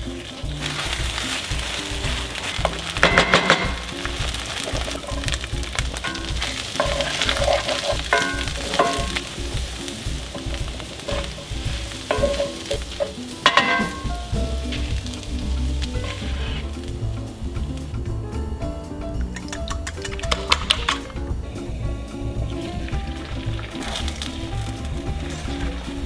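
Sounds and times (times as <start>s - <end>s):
wooden spoon scraping: 0.0s - 17.8s
food sizzling in a skillet: 0.0s - 18.1s, 20.8s - 26.0s
soft background music: 0.0s - 26.0s.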